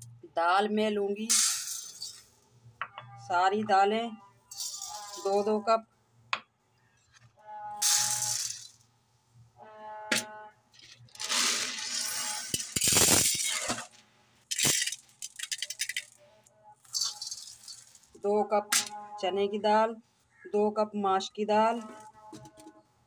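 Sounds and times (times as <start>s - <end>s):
dry lentils pattering onto metal: 16.9s - 18.2s.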